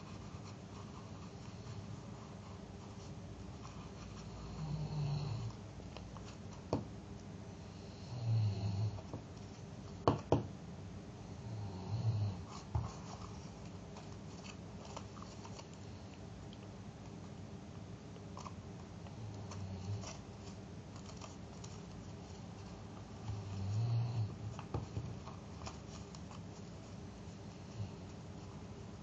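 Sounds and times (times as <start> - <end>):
paper rustling: 12.5 - 15.9, 18.3 - 23.8, 24.4 - 29.0.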